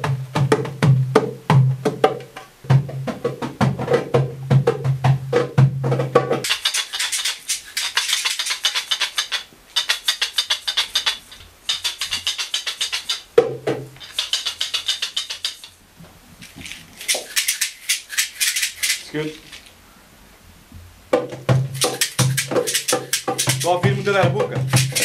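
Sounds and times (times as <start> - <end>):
deep drum note: 2.6 - 6.4
hand shaker rattling: 6.4 - 19.8, 21.6 - 25.0.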